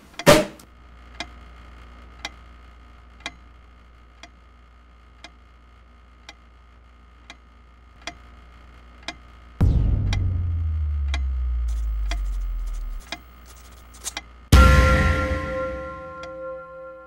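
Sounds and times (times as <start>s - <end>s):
loud low hum: 8.4s - 17.0s.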